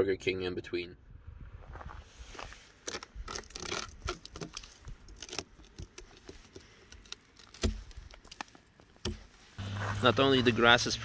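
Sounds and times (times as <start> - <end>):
footsteps crunching on frozen grass: 1.6 - 2.8, 9.4 - 10.8.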